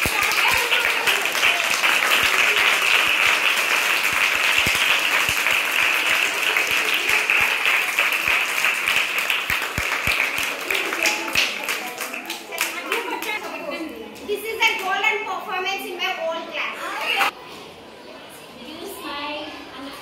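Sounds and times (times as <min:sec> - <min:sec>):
children applauding: 0:00.0 - 0:13.4.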